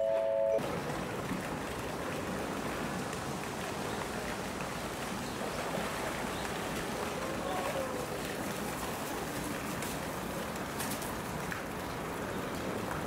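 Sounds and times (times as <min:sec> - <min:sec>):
three-note descending chime: 0:00.0 - 0:00.6.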